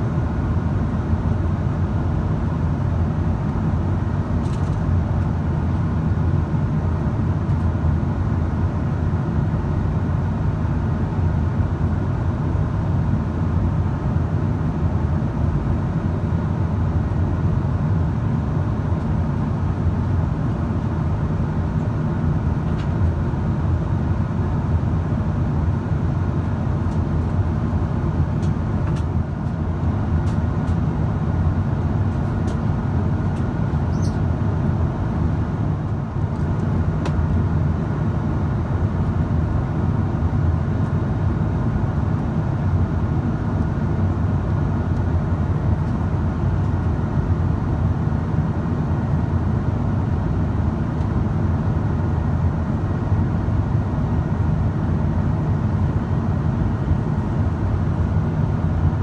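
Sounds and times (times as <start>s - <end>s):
airplane cabin roar: 0.0s - 59.0s.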